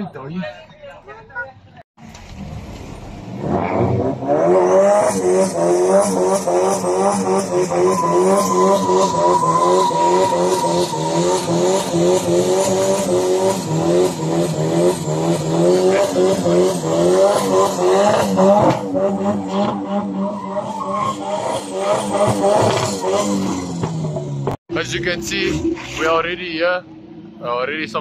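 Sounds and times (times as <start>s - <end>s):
car engine revving high: 3.2s - 26.2s
tyres squealing and skidding: 3.4s - 24.4s.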